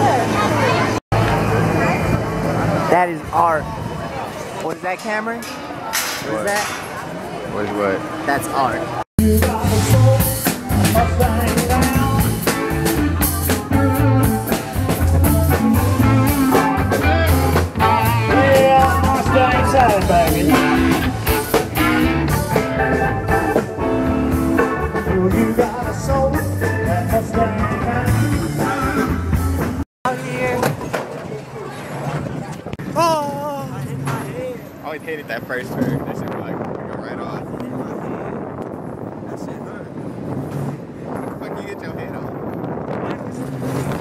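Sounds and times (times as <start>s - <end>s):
drum beat: 9.2s - 29.8s
live rock and roll band: 9.2s - 29.8s
upright bass line: 9.2s - 29.8s.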